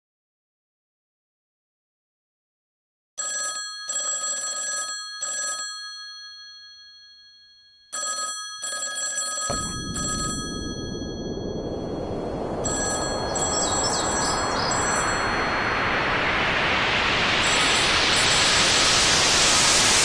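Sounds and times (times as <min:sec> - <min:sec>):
telephone bell ringing: 0:03.2 - 0:10.8
rushing noise: 0:09.5 - 0:20.0.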